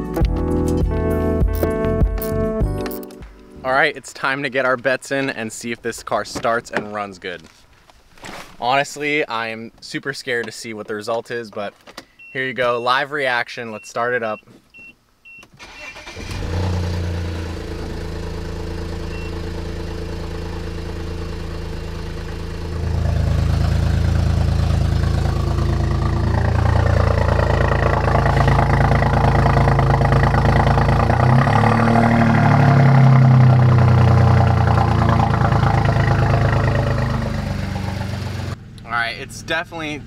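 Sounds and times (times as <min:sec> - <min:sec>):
car engine running rough: 0:16.0 - 0:38.9.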